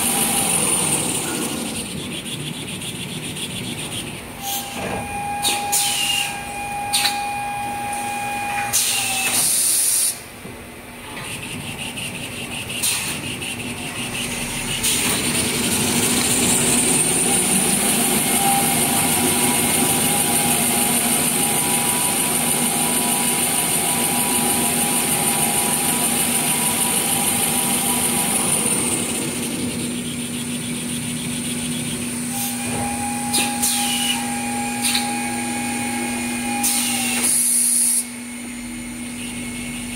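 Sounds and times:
paper rewinding machine humming: 0:00.0 - 0:04.4, 0:11.1 - 0:32.3.

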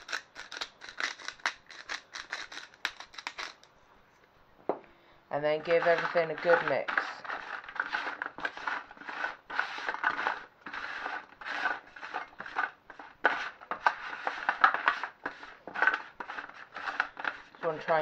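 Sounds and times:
spatula scraping a metal tin: 0:05.4 - 0:18.0.

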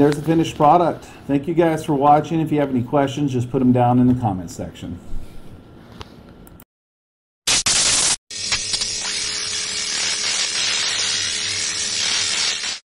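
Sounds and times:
neon sign electric hiss and crackle: 0:07.5 - 0:12.8.

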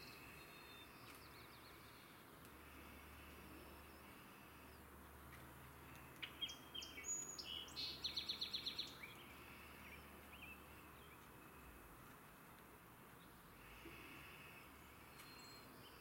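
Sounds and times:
blackbird song with trill: 0:00.0 - 0:02.2, 0:06.0 - 0:11.7, 0:14.8 - 0:16.0.

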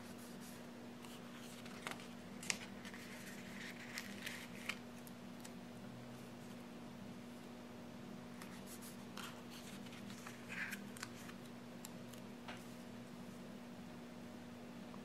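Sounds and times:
paper rustling: 0:00.0 - 0:05.5, 0:08.3 - 0:11.4
steady low hum: 0:00.0 - 0:15.0.

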